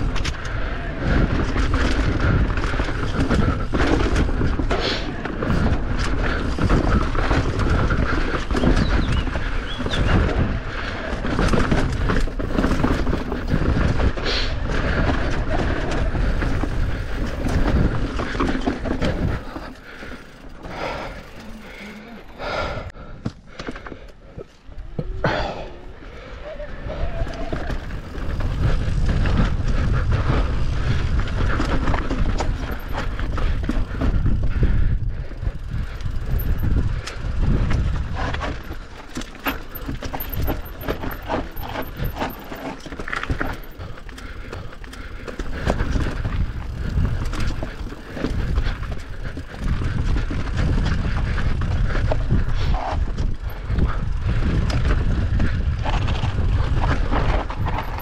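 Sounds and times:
bike knocks and rattles: 0.0s - 21.6s, 27.4s - 58.0s
wind rumbling on microphone: 0.0s - 58.0s.

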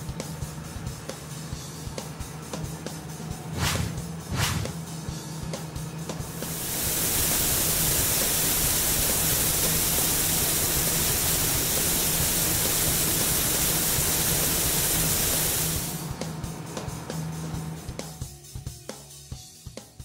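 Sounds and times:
liquid spraying hiss: 6.4s - 16.1s.

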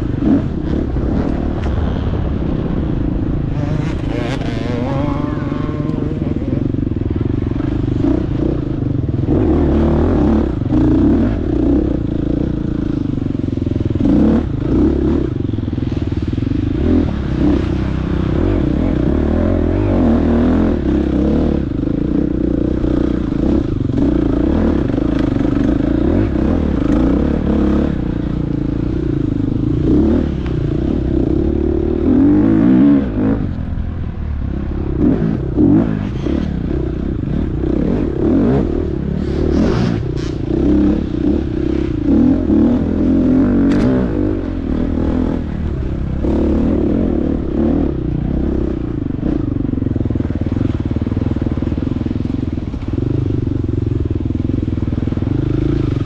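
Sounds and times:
dirt bike engine revving: 0.0s - 49.5s.

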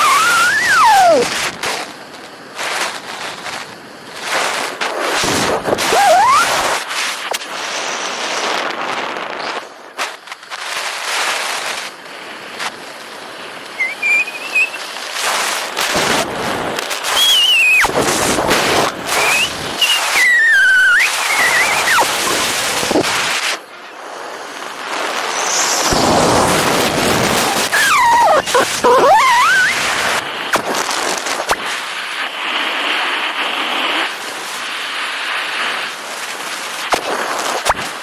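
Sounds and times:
gliding whistling tones: 0.0s - 1.2s, 5.9s - 6.6s, 13.7s - 14.9s, 17.1s - 18.0s, 19.1s - 23.0s, 25.2s - 26.4s, 27.4s - 29.9s
wind buffeting microphone: 20.4s - 23.4s, 24.8s - 31.4s.

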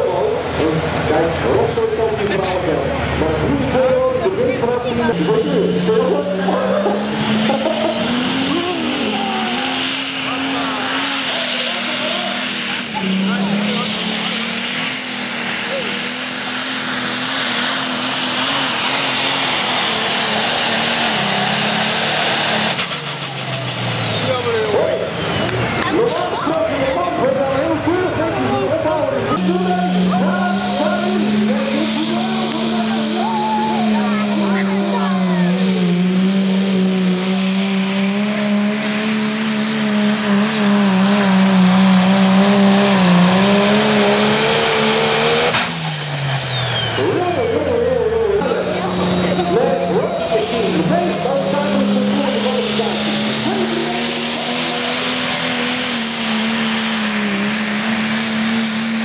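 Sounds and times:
tractor diesel engine droning: 0.0s - 59.0s.

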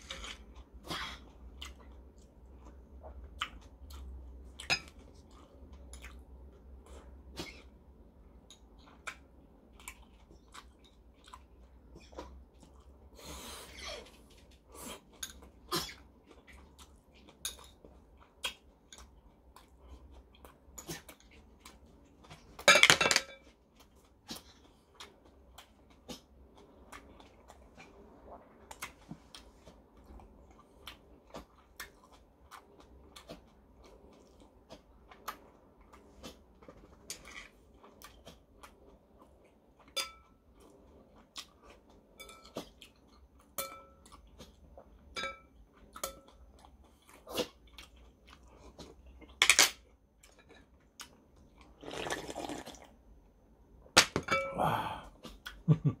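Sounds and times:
person chewing: 0.0s - 22.6s, 23.7s - 45.0s, 45.6s - 49.4s
chopsticks and dishes clinking: 39.9s - 40.4s, 42.2s - 42.8s, 43.5s - 44.2s, 45.1s - 46.4s, 54.0s - 54.6s
loud slurp from cup: 51.8s - 52.9s.

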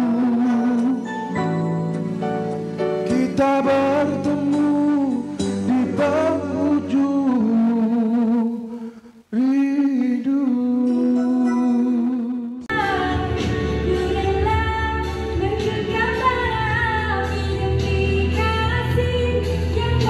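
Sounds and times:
man singing with vibrato: 0.0s - 1.9s, 3.0s - 12.7s
backing music with bass line: 0.0s - 8.7s, 9.4s - 20.0s
woman singing: 12.7s - 20.0s.

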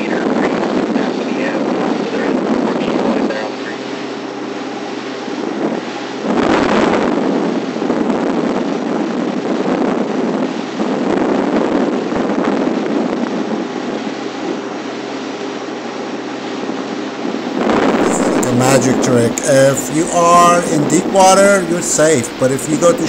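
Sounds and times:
wind buffeting microphone: 17.1s - 19.4s
steady low hum: 17.3s - 23.0s.

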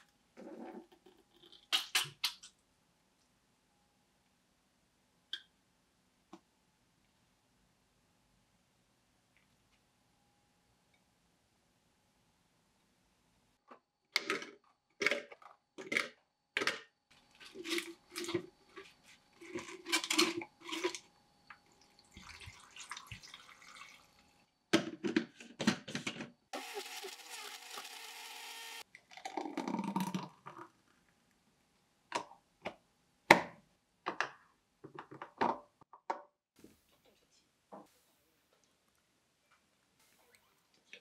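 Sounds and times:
blender running: 26.6s - 28.8s.

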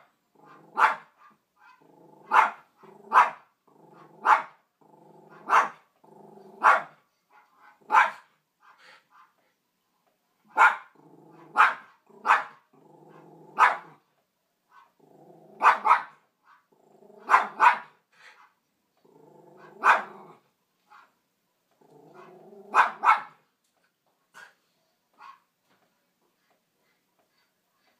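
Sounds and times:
dog barking: 0.4s - 3.5s, 4.2s - 4.6s, 5.3s - 5.8s, 6.6s - 8.3s, 10.5s - 14.0s, 15.6s - 16.2s, 17.2s - 18.0s, 19.6s - 20.3s, 22.2s - 23.4s
dog growling: 1.8s - 6.7s, 11.0s - 14.0s, 15.0s - 15.6s, 16.7s - 17.6s, 19.0s - 20.4s, 21.8s - 23.0s.

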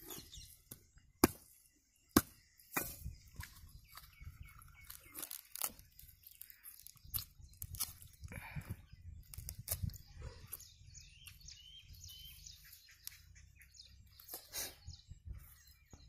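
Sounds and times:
husk tearing and scraping: 3.4s - 8.3s.

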